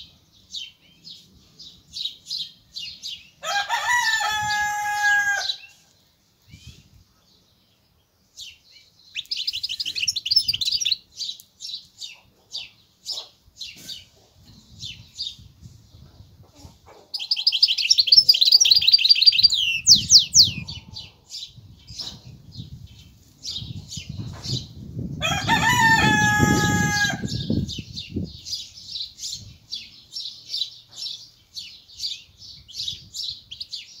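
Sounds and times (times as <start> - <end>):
rooster crowing: 3.4 - 5.7, 25.2 - 27.6
finch twittering and trilling: 8.4 - 15.5, 17.1 - 34.0.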